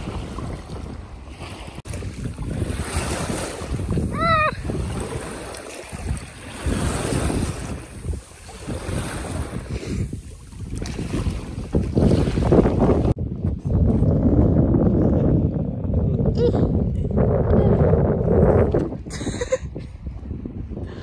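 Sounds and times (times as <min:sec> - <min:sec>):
wind buffeting microphone: 0:00.0 - 0:21.0
wavering high cry: 0:04.1 - 0:04.6.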